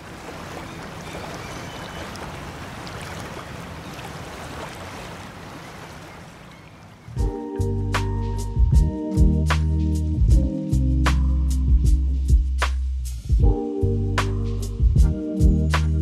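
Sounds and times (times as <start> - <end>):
sea waves washing: 0.0 - 7.3
music with a beat: 7.2 - 16.0.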